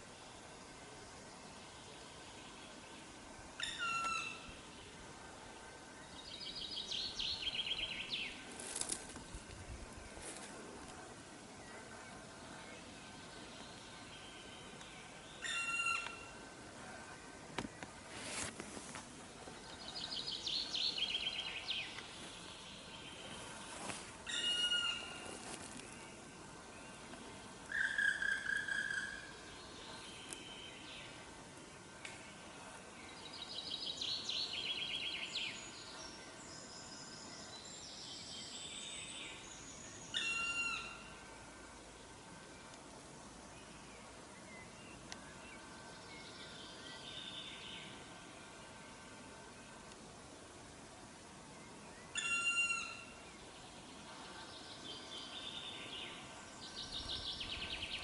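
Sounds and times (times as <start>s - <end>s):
songbirds singing: 0.0s - 18.1s, 19.2s - 58.0s
faint background birdsong: 0.0s - 58.0s
faint hiss: 0.0s - 58.0s
bird trill: 15.4s - 16.3s, 24.3s - 25.3s, 40.1s - 41.1s, 52.1s - 53.1s.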